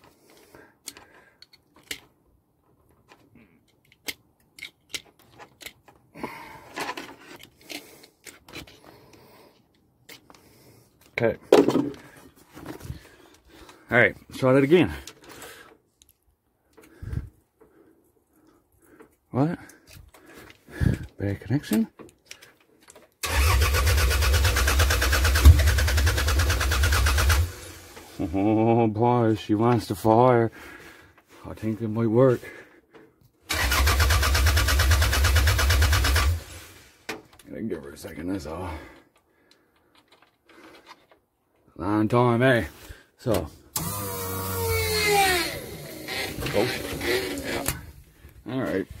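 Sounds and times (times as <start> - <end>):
hand tool clicking and snipping: 0.8 - 2.2, 3.6 - 6.1
car engine cranking on starter: 23.2 - 28.3, 33.5 - 37.0, 43.7 - 47.8.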